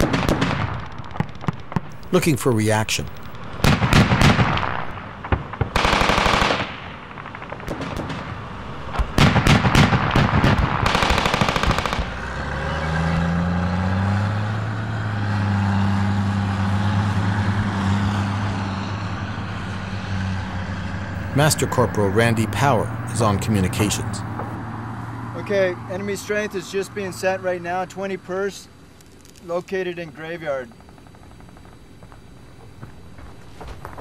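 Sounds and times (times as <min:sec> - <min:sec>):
automatic gunfire: 0:03.6 - 0:08.3, 0:09.2 - 0:12.2
vehicle engine running: 0:11.3 - 0:25.1.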